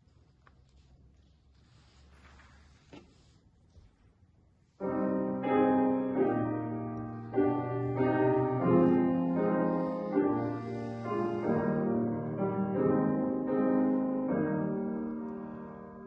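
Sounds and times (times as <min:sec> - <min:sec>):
grand piano chords: 0:04.8 - 0:16.0.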